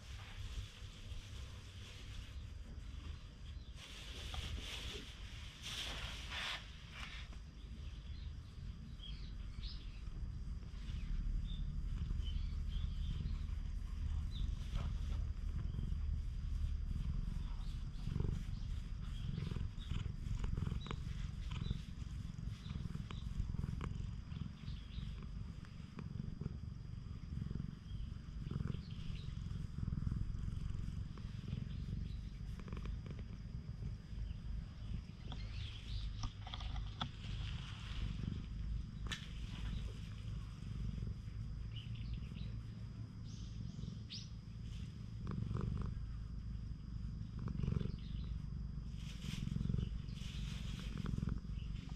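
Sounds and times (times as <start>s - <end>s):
hand rustling on fur: 0.0s - 8.1s, 10.6s - 26.4s, 27.6s - 41.4s, 48.8s - 51.9s
cat purring: 0.0s - 51.9s.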